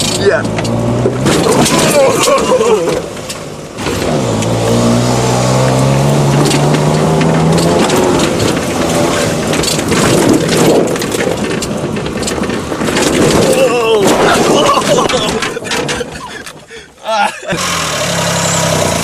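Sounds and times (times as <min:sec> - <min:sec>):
rattling and knocks: 0:00.0 - 0:04.8, 0:05.4 - 0:17.0
car engine revving hard: 0:00.0 - 0:11.0, 0:17.5 - 0:19.0.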